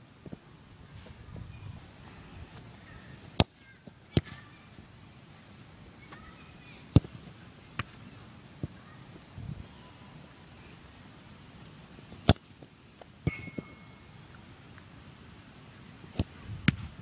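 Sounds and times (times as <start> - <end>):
football kicked on grass: 2.4 - 4.4, 6.9 - 8.0, 16.2 - 17.0.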